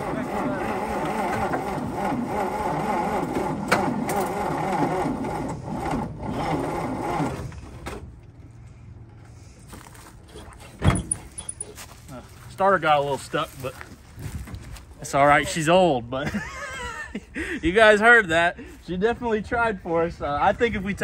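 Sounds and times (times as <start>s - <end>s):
starter motor cranking engine: 0.0s - 8.1s
sharp clunk: 10.8s - 11.3s.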